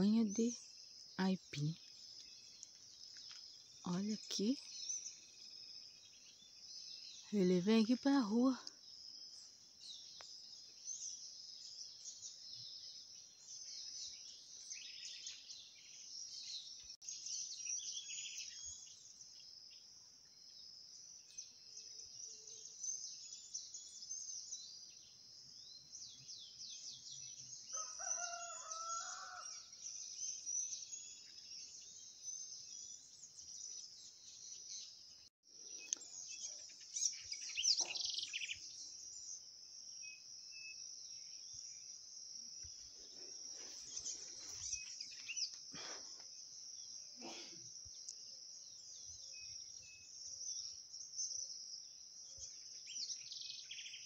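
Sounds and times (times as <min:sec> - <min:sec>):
bird chirps: 0:00.0 - 0:54.0
insect drone: 0:00.5 - 0:54.0
rooster crowing: 0:27.7 - 0:29.8.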